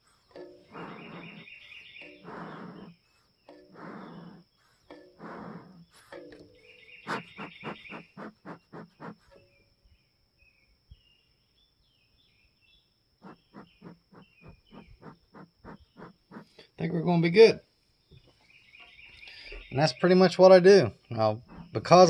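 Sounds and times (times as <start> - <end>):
bellows puffing: 0.0 - 9.4, 13.2 - 16.8, 21.4 - 22.0
birds chirping: 0.0 - 22.0.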